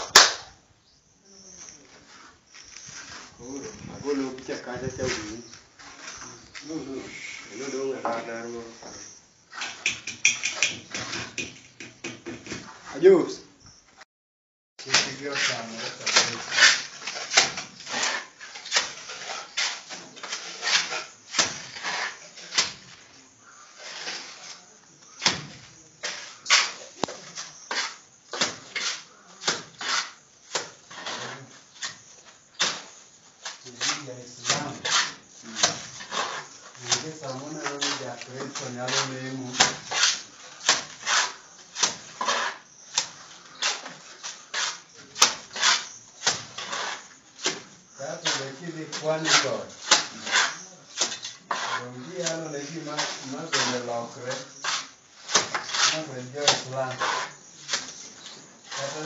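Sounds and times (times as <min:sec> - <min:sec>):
sharp knocks: 0:09.6 - 0:12.7
trowel scraping in metal pan: 0:14.9 - 0:22.7, 0:33.7 - 0:42.6, 0:48.2 - 0:59.0.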